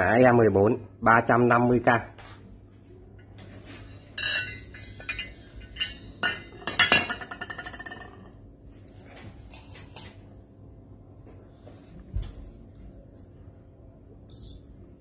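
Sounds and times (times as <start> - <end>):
brass candlesticks clinking: 4.2 - 8.2.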